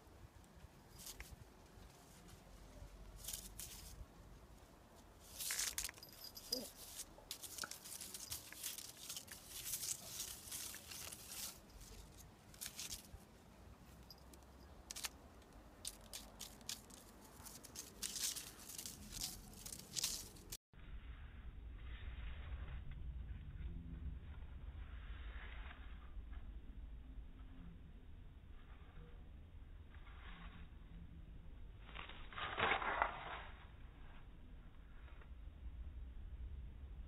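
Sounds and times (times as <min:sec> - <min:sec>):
grass rustling: 0:00.4 - 0:20.6.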